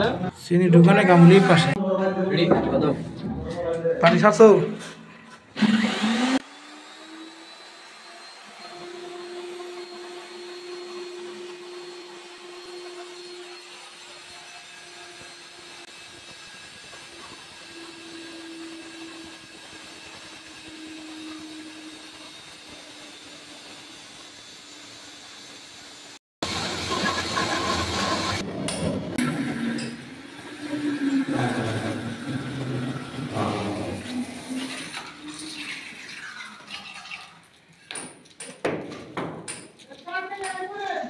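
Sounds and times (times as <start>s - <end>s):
core drill whine: 5.6s - 35.8s.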